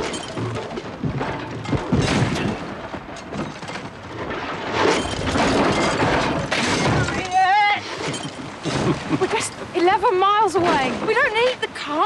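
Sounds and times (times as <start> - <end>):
low booming thuds: 0.0 - 7.3.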